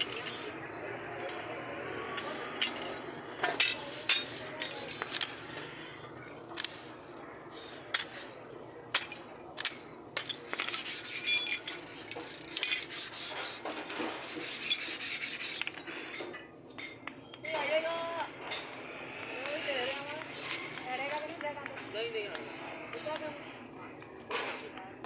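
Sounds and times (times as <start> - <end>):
metal scraping on metal: 9.0 - 17.0.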